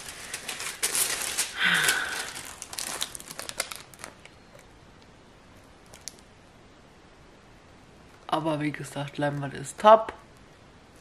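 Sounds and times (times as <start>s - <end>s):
plastic rustling and crinkling: 0.0s - 4.7s, 5.8s - 6.3s.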